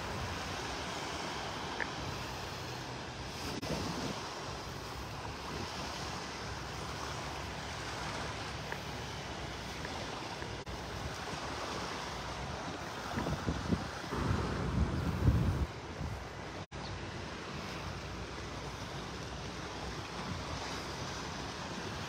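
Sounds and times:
wind on the microphone: 0.0s - 8.6s, 9.3s - 16.6s
surf washing on a beach: 0.0s - 22.0s.

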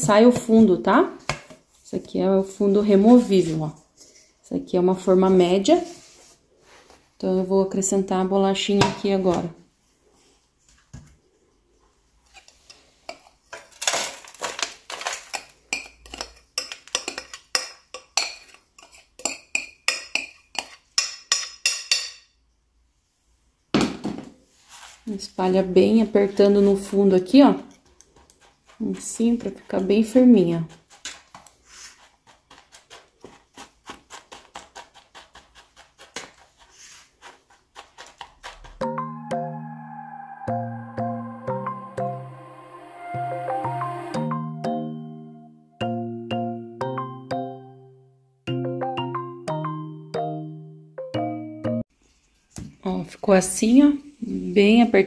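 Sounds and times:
spoon scraping glass bowl: 15.4s - 20.8s
spoon tapping in metal pan: 19.2s - 22.3s.

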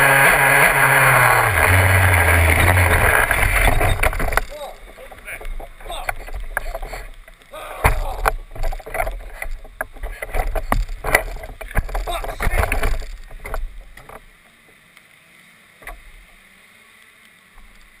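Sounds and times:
wind and rain: 0.0s - 18.0s
faint hiss: 9.2s - 18.0s.

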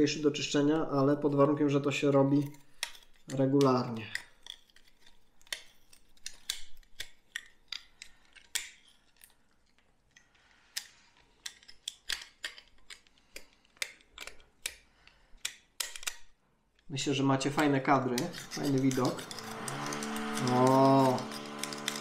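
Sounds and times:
utility knife scraping foam: 18.0s - 22.0s.

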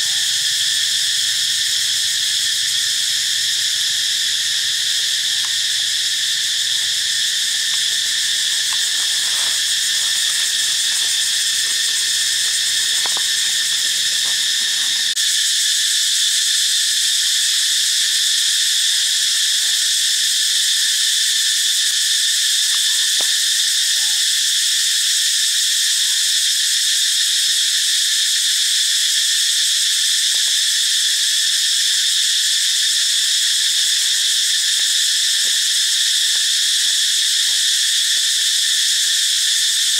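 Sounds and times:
high-pitched insect chorus: 0.0s - 39.9s
faint clicks: 7.7s - 15.2s.

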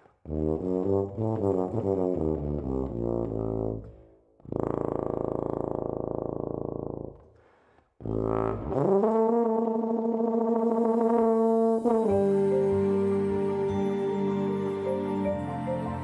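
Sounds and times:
tuba playing: 0.2s - 7.1s, 8.0s - 16.0s
soft ambient chord: 11.6s - 16.0s.

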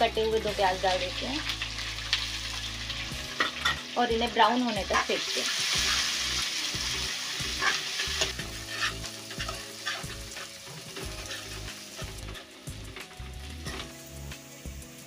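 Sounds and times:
onions sizzling in hot oil: 0.0s - 15.0s
spoon scraping metal pan: 5.6s - 6.2s, 6.8s - 13.9s.

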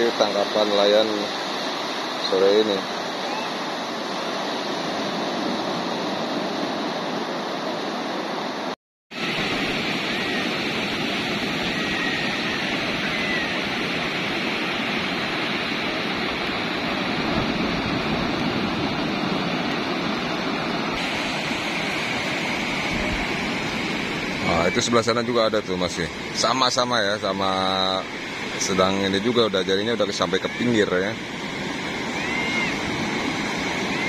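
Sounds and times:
ocean surf washing on beach: 0.0s - 34.0s.

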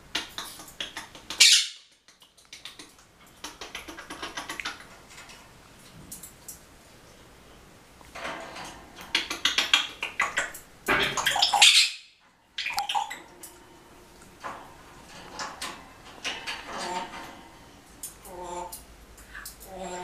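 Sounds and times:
parrot clicks and rattles: 0.1s - 6.6s, 8.1s - 11.6s, 14.4s - 19.8s.

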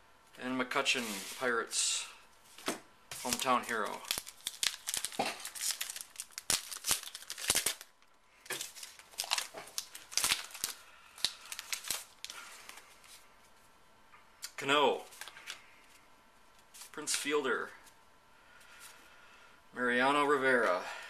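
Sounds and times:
foil wrapper tearing and crinkling: 3.2s - 12.4s.

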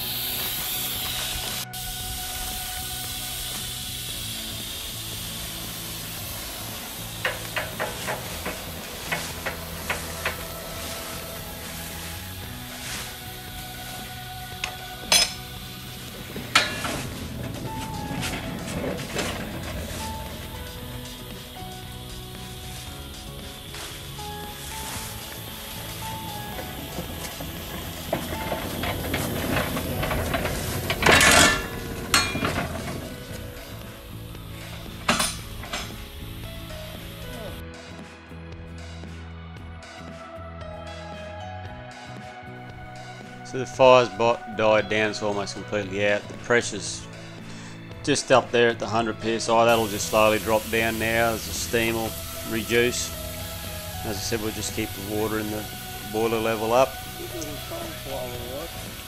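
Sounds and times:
steam locomotive hissing: 0.0s - 37.6s, 42.0s - 59.0s
sharp metal clank: 15.1s - 15.5s, 16.5s - 17.0s, 31.0s - 32.7s, 35.1s - 36.0s
metallic clinks and knocks: 26.3s - 33.4s, 34.7s - 36.0s.

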